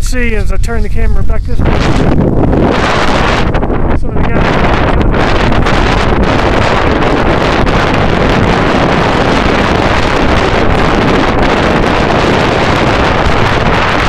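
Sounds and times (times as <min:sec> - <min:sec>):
storm wind buffeting microphone: 0:00.0 - 0:14.0.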